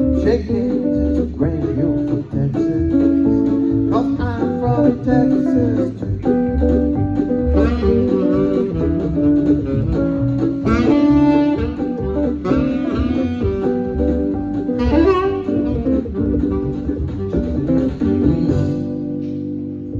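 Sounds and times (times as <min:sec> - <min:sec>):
bass: 0:00.0 - 0:19.9
guitar: 0:00.0 - 0:19.9
saxophone solo: 0:06.9 - 0:19.6.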